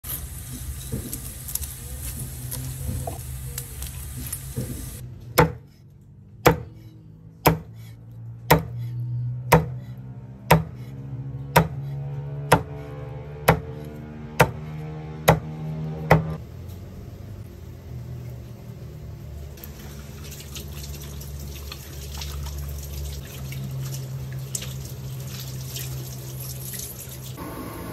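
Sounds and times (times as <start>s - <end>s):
cleaver chopping on a board: 5.4s - 5.6s, 6.4s - 6.7s, 7.4s - 7.7s, 8.5s - 8.8s, 9.5s - 9.8s, 10.5s - 10.8s, 11.5s - 11.8s, 12.5s - 12.8s, 13.4s - 13.8s, 14.4s - 14.6s, 15.2s - 16.4s.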